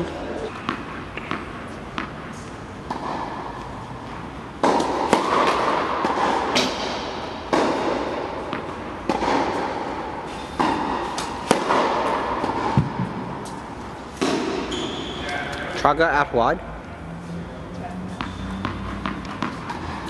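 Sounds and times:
tennis ball impacts with echo: 0:00.0 - 0:15.0, 0:17.8 - 0:20.0.

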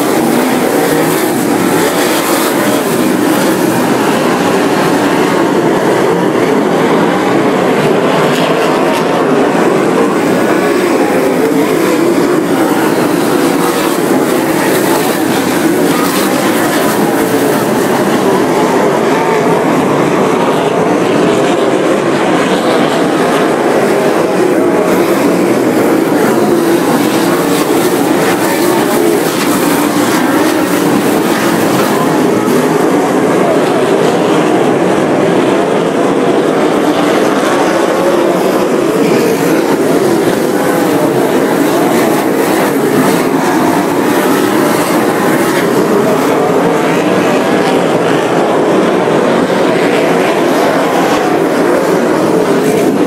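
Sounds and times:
race car engines roaring: 0:00.0 - 0:53.0.

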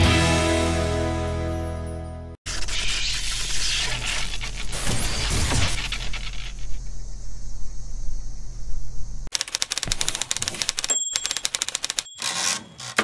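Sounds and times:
electrical hum and buzz: 0:03.2 - 0:09.3
typewriter keystrokes clattering: 0:09.3 - 0:13.0
thin ringing tone: 0:10.8 - 0:13.0.

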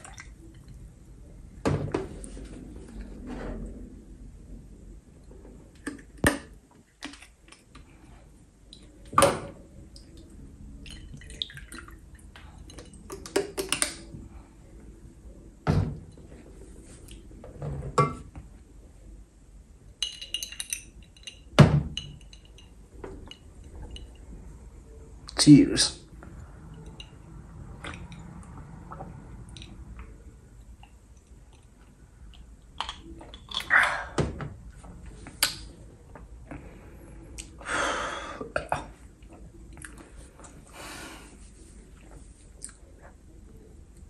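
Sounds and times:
glass knocks and clinks: 0:20.0 - 0:24.1.

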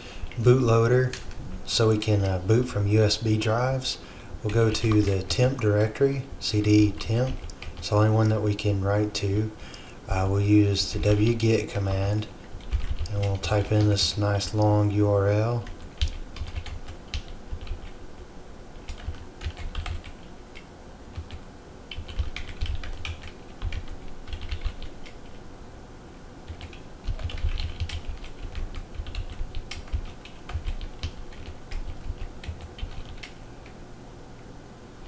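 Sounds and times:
keyboard typing: 0:06.6 - 0:08.4, 0:11.0 - 0:18.0, 0:18.8 - 0:25.4, 0:26.5 - 0:33.8.

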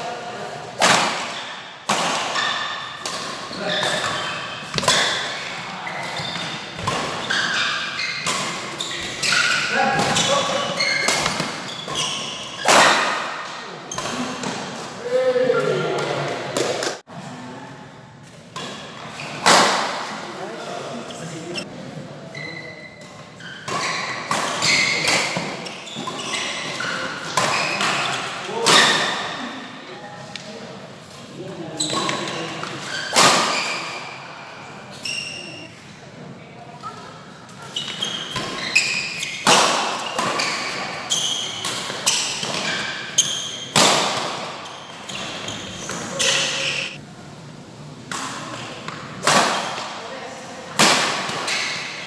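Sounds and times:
racket hitting shuttlecock: 0:00.8 - 0:14.8, 0:18.6 - 0:20.2, 0:23.6 - 0:29.3, 0:32.7 - 0:34.0, 0:37.8 - 0:43.1, 0:43.7 - 0:46.8, 0:50.8 - 0:52.0
shoes squeaking on court: 0:02.4 - 0:12.8, 0:22.3 - 0:28.4, 0:34.9 - 0:35.7, 0:36.8 - 0:47.0.

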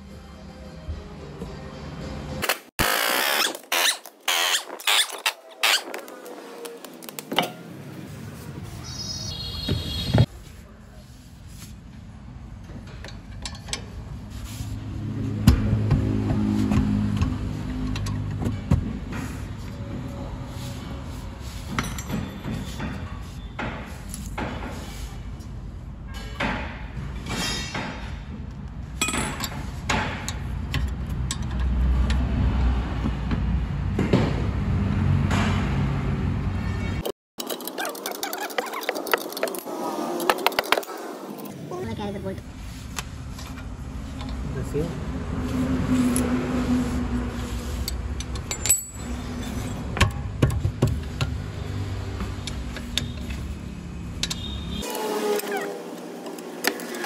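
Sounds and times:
hand tools clinking on metal: 0:48.2 - 0:49.2.

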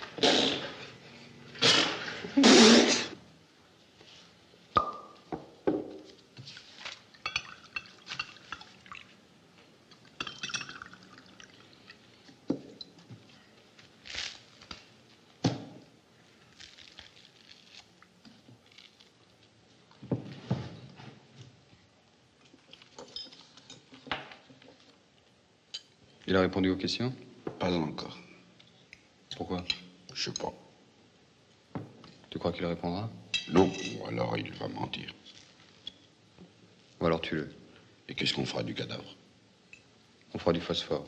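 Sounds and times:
dishes and cutlery clinking: 0:07.2 - 0:09.0, 0:22.8 - 0:24.6, 0:33.4 - 0:34.3
wine pouring into glass: 0:10.2 - 0:12.0.

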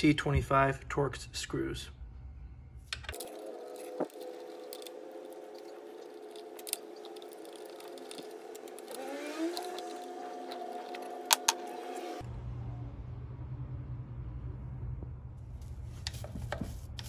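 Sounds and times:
steady droning hum: 0:00.6 - 0:12.4
screwdriver scraping: 0:03.0 - 0:11.8.

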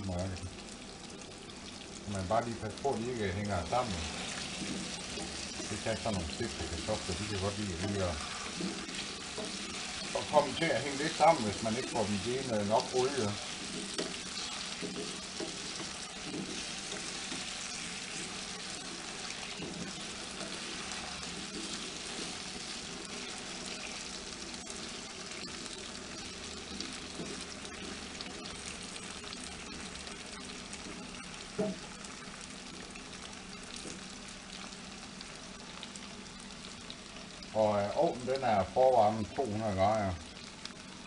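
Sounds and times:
potatoes sizzling in oil: 0:00.0 - 0:41.0
wooden spatula scraping pan: 0:03.9 - 0:24.1.

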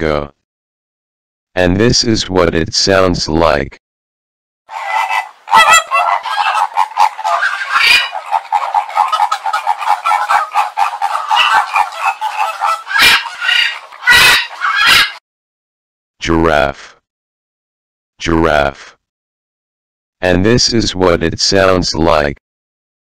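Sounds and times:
flamingos honking: 0:04.7 - 0:15.2.

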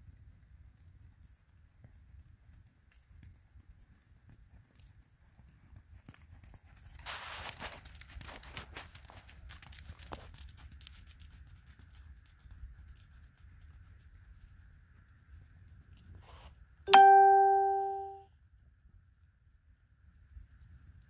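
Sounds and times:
horse hooves trotting on sand: 0:00.0 - 0:16.7.

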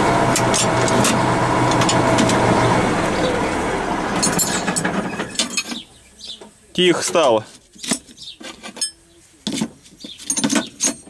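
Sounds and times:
tractor engine running: 0:00.0 - 0:06.0.

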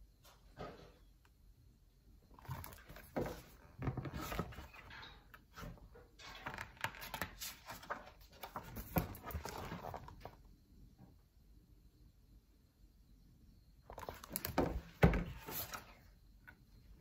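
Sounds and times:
book pages rustling: 0:05.6 - 0:10.4.

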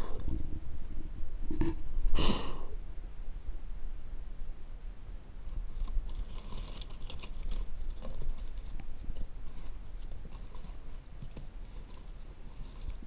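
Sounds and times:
packing paper crinkling: 0:05.8 - 0:13.0.

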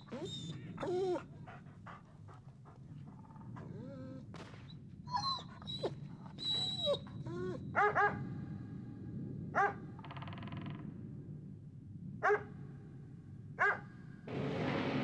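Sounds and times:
dog whining: 0:00.0 - 0:01.6, 0:03.2 - 0:07.8
dog yelping: 0:00.0 - 0:01.6, 0:05.1 - 0:08.2.

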